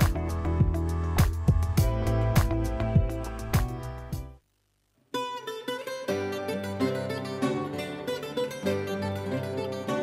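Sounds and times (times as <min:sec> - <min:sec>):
background music: 0:00.0 - 0:04.4, 0:05.2 - 0:10.0
plucked-string music: 0:05.1 - 0:10.0.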